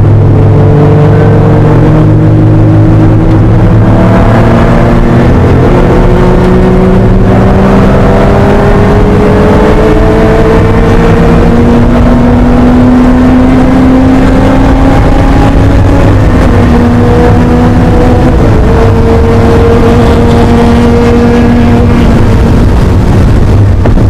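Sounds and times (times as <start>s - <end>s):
car engine at full throttle: 0.0s - 24.0s.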